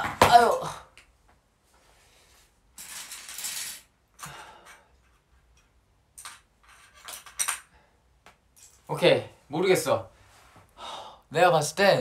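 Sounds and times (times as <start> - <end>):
small hard parts rattling: 2.8 - 7.7.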